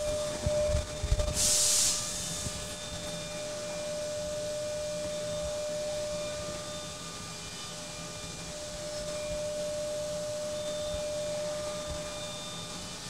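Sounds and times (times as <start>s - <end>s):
machine hum with whining tone: 0.0s - 13.0s
sharp hiss of air: 1.2s - 3.0s.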